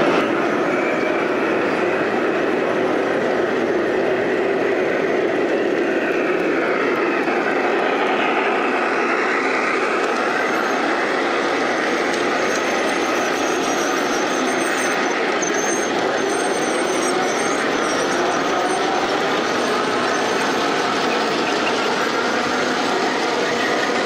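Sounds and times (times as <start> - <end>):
model train wheels rumbling: 0.0 - 24.0.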